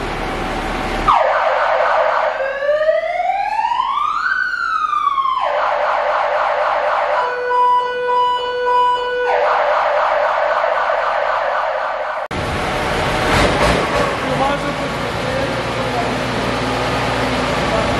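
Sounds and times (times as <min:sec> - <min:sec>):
fire engine siren: 0:00.0 - 0:13.2.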